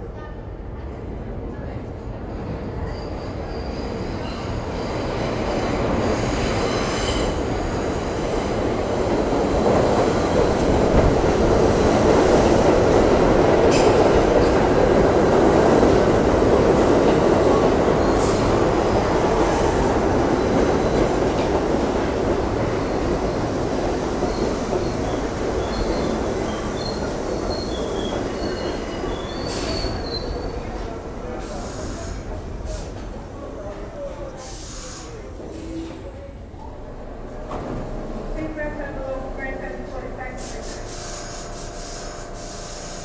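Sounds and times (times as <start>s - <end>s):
subway train arriving: 0.0s - 43.0s
faint high wheel squeals: 24.3s - 30.7s.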